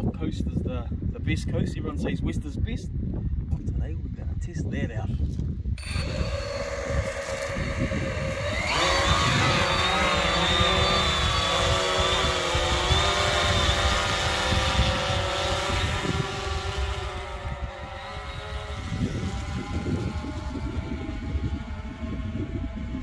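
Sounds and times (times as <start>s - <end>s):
drone propellers whining: 5.8s - 23.0s.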